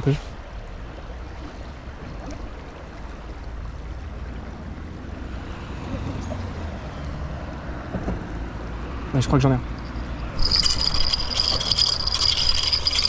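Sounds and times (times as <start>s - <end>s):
river water rushing: 9.7s - 13.0s.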